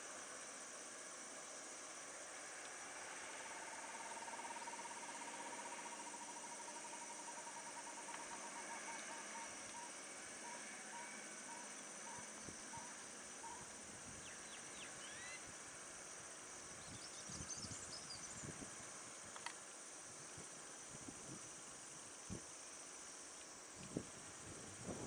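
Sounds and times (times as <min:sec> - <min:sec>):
high-pitched insect chorus: 0:00.0 - 0:25.0
short bird chirps: 0:14.5 - 0:15.4.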